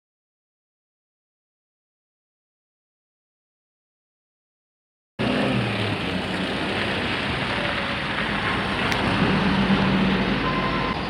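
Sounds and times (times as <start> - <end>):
bus diesel engine rumbling: 5.2 - 11.0.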